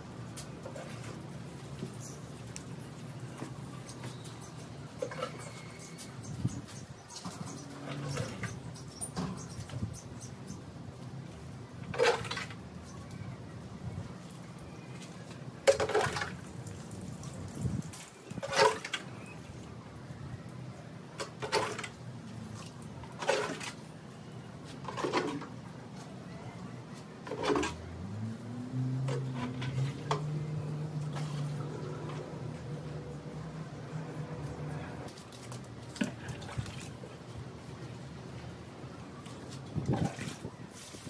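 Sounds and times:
water poured onto plants: 0:14.2 - 0:19.7, 0:39.3 - 0:41.0.

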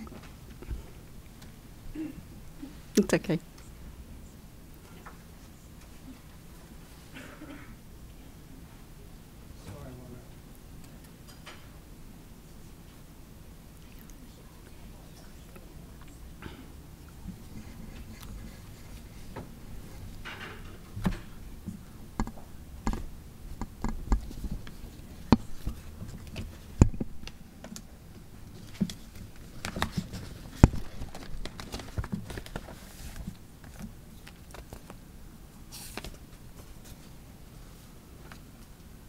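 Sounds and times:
paper rustling: 0:28.5 - 0:35.0, 0:35.7 - 0:37.1.

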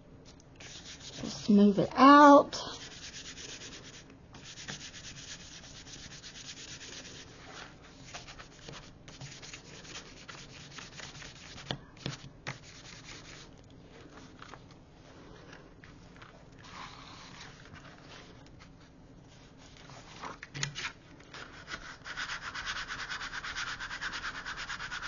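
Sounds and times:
hands brushing paper: 0:00.6 - 0:01.7, 0:02.7 - 0:20.4.

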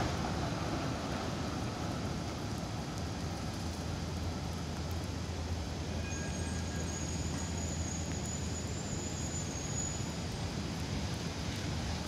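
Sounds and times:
distant traffic on wet roads: 0:00.0 - 0:12.0
faint high-pitched squeal: 0:05.9 - 0:10.4.

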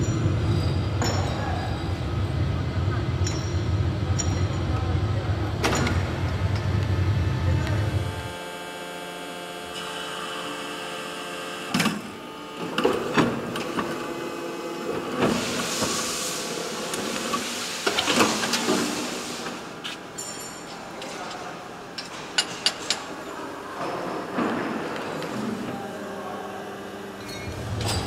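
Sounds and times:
machine humming: 0:05.0 - 0:17.3
hiss: 0:15.2 - 0:19.7.

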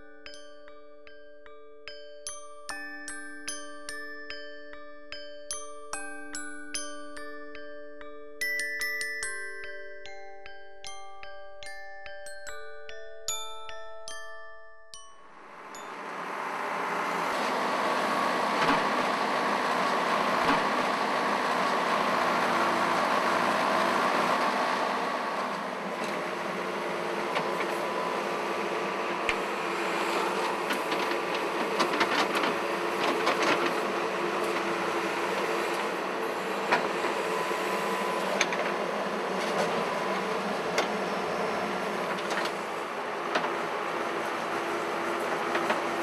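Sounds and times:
diesel engine running under load: 0:15.4 - 0:46.0
digger bucket clanking: 0:30.2 - 0:35.9.

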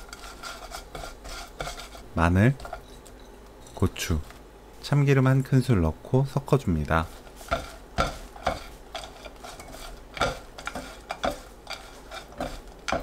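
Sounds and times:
spatulas scraping pan: 0:00.0 - 0:03.1, 0:07.1 - 0:13.0.

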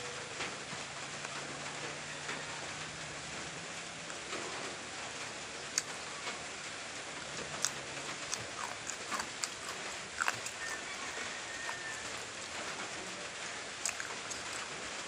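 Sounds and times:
chewing clicks and smacks: 0:05.7 - 0:06.0, 0:07.5 - 0:15.0.

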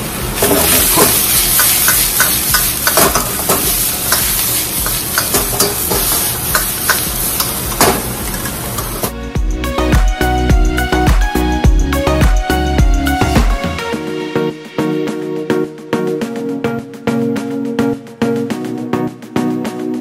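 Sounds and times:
food sizzling in a wok: 0:00.0 - 0:09.2
metal ladle scraping a wok: 0:00.4 - 0:09.1
background music: 0:00.4 - 0:20.0.

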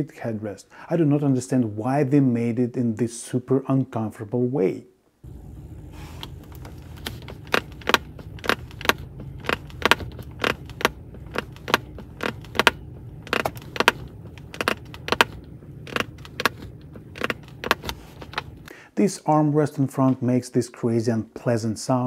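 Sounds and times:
steady low hum: 0:05.2 - 0:18.9
armrest plastic clicking and creaking: 0:06.2 - 0:18.7.

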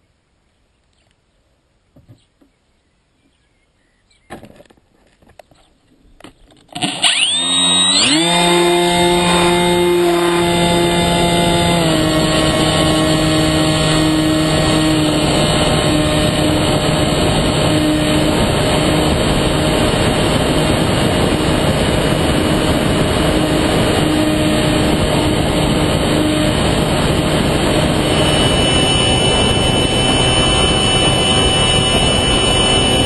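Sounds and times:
wind rushing over camera: 0:06.2 - 0:33.0
motor and propeller hum: 0:06.7 - 0:33.0.

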